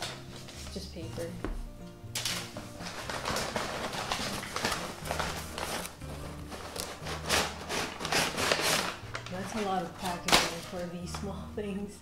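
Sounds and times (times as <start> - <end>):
packing paper rustling: 2.2 - 11.2.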